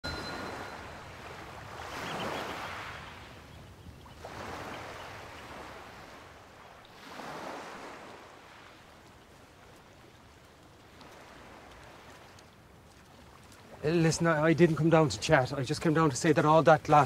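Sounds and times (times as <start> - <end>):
small waves washing onto shore: 0.0 - 17.0.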